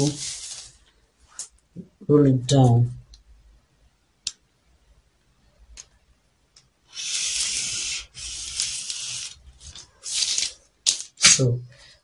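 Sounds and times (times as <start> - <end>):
marker pen scratching on paper: 6.9 - 10.5.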